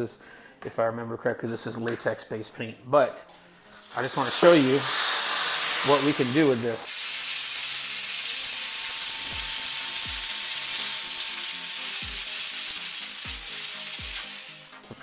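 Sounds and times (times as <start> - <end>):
steam cleaner hissing: 3.5 - 15.0.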